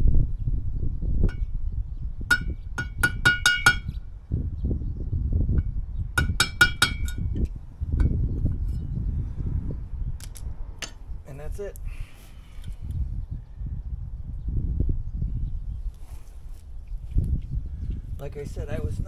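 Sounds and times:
steady low rumble: 0:00.0 - 0:11.9
metal tool tapping on metal: 0:02.3 - 0:04.0, 0:06.2 - 0:08.2.

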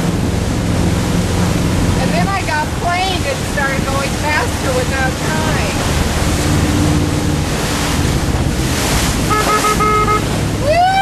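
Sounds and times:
motorboat engine running: 0:00.0 - 0:11.0
water rushing past: 0:00.0 - 0:11.0
wind buffeting microphone: 0:00.0 - 0:11.0
short pitched notes: 0:09.2 - 0:10.4.

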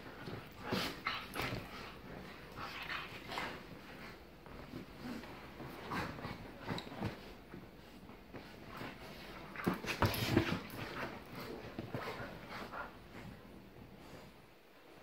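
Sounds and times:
dogs scuffling: 0:00.0 - 0:14.4.

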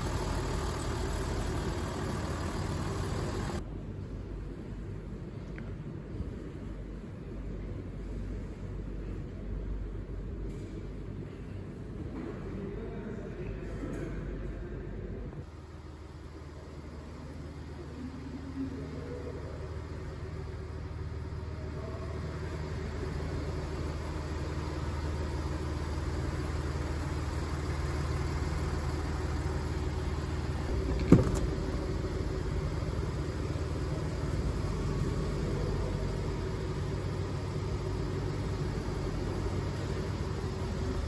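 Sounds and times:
diesel engine idling: 0:00.0 - 0:03.9, 0:15.4 - 0:41.0
sharp thump: 0:30.9 - 0:31.5.

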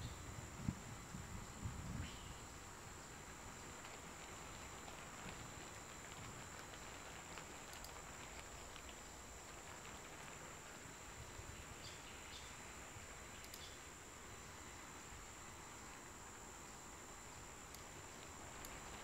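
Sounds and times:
faint background hiss: 0:00.0 - 0:19.0
thin high-pitched whine: 0:00.0 - 0:19.0
faint short clicks: 0:13.4 - 0:13.8.

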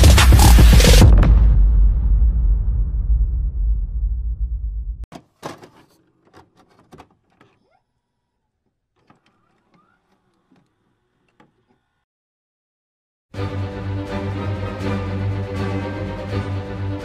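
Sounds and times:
bass-heavy electronic music: 0:00.0 - 0:05.0.

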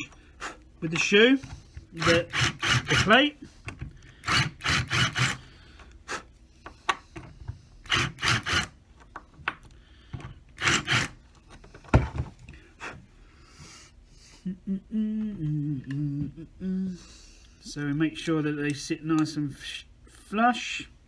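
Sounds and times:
cordless drill grinding into metal: 0:02.0 - 0:03.3, 0:04.2 - 0:05.5, 0:07.8 - 0:08.8, 0:10.6 - 0:11.2.

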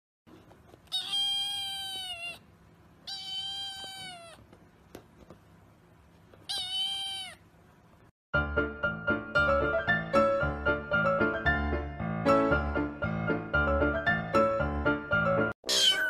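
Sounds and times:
kitten meowing: 0:00.9 - 0:02.4, 0:03.0 - 0:04.4, 0:06.4 - 0:07.4, 0:15.7 - 0:16.0.

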